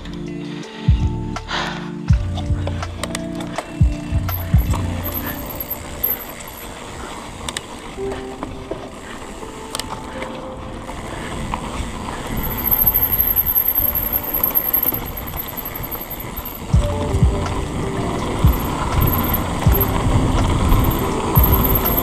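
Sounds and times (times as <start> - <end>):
bike clicks and rattles: 2.2 - 22.0
bike tyres on dirt trail: 2.6 - 22.0.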